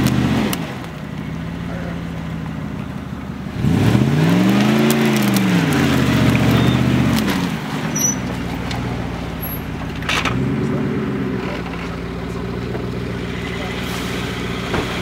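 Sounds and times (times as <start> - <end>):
engine revving under load: 0.0 - 15.0.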